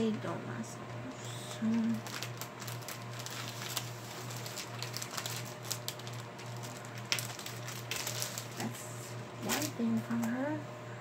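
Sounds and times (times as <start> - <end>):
steady low hum: 0.0 - 11.0
packaging rustling: 1.6 - 8.8, 9.4 - 10.4.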